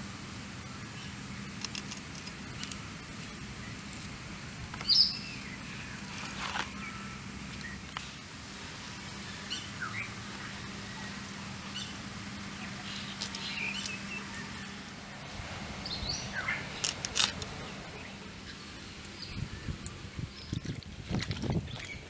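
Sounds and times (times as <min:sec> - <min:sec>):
steady high-pitched hiss: 0:00.0 - 0:22.0
birds chirping and whistling: 0:04.8 - 0:08.2, 0:09.3 - 0:12.0, 0:12.6 - 0:14.8, 0:15.8 - 0:16.9.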